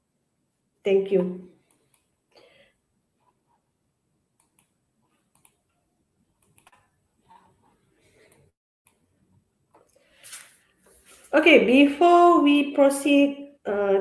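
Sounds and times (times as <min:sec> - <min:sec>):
computer mouse clicks: 0:01.6 - 0:02.1, 0:04.4 - 0:05.6, 0:06.4 - 0:07.5.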